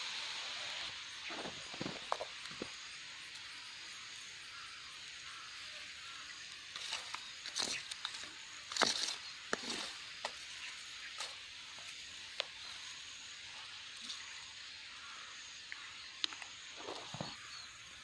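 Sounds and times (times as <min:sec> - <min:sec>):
steady hiss: 0:00.0 - 0:18.0
skewer clicks and rustles: 0:06.6 - 0:12.6.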